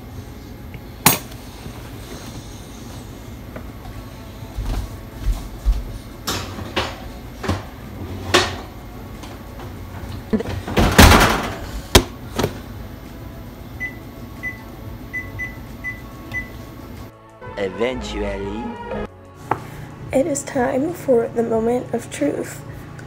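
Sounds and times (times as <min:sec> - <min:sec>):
oven door shutting: 0:10.4 - 0:12.6.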